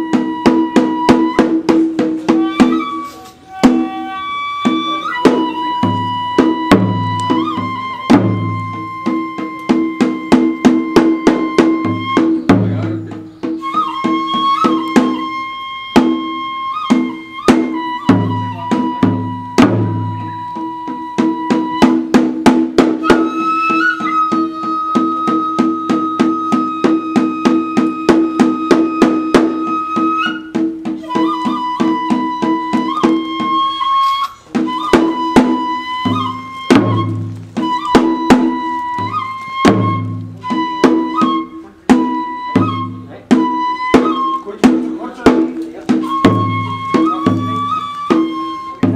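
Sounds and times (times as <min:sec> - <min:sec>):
bamboo flute long high notes: 0:00.0 - 0:22.3, 0:22.9 - 0:45.2, 0:45.9 - 0:48.9
quick drum beat: 0:41.9 - 0:48.9.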